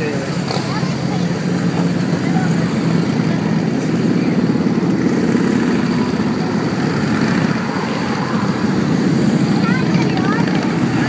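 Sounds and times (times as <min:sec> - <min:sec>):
motorcycles passing by: 0:00.0 - 0:11.0.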